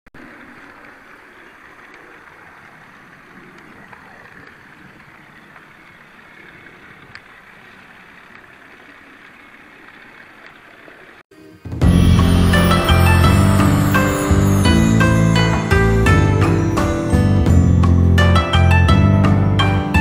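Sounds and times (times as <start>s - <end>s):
faint clicks: 0.4s - 10.6s.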